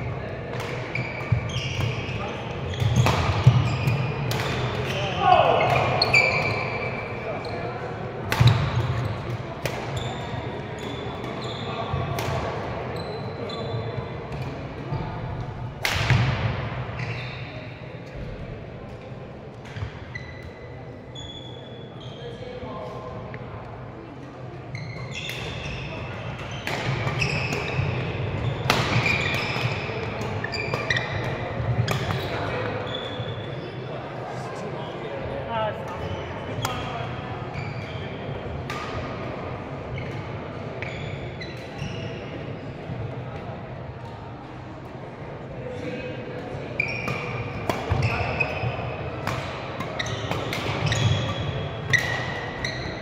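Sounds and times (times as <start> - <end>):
court shoes squeaking: 0.0 - 18.4, 19.5 - 44.7, 45.6 - 53.0
badminton racket hit: 26.6 - 32.3, 47.1 - 48.5, 49.1 - 52.5.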